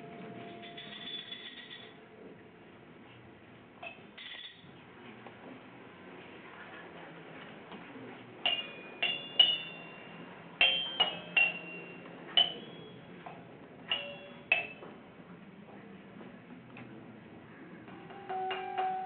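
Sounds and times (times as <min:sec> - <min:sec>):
bright ringing clinks of struck objects: 0:00.0 - 0:02.0, 0:08.5 - 0:13.1, 0:13.9 - 0:14.8.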